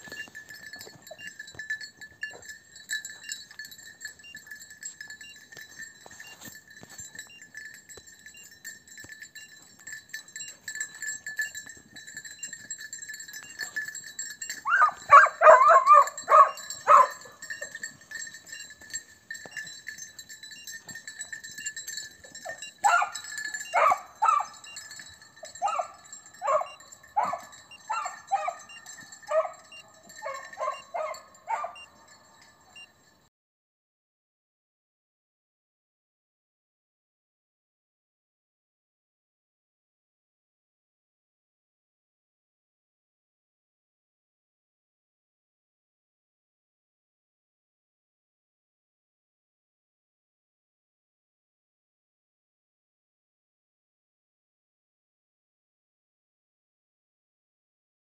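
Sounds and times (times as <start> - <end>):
hounds baying: 0.0 - 7.7, 8.3 - 32.9.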